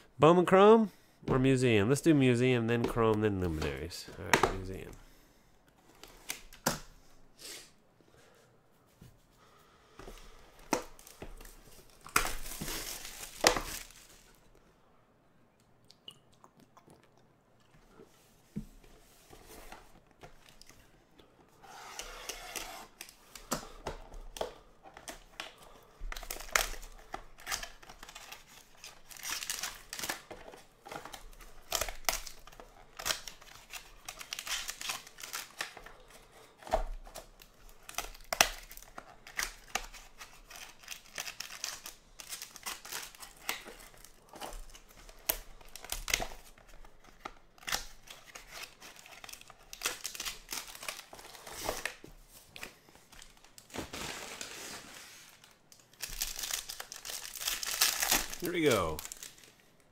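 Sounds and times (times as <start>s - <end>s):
plastic shrink-wrap crinkling: 11.0s - 14.5s, 53.0s - 59.7s.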